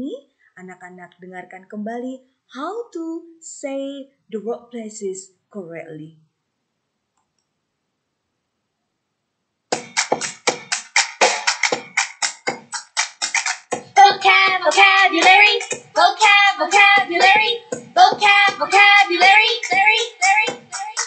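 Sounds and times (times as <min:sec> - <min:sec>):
sharp even beat: 0:09.7 - 0:21.0
person singing: 0:13.9 - 0:21.0.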